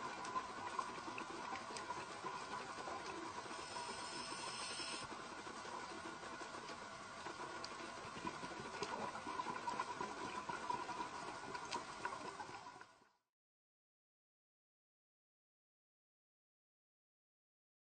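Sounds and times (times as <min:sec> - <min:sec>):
underwater hiss and hum: 0:00.0 - 0:12.9.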